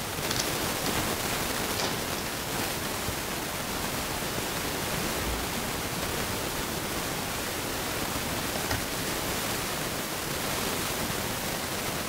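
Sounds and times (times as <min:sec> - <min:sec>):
recording noise hiss: 0:00.0 - 0:12.0.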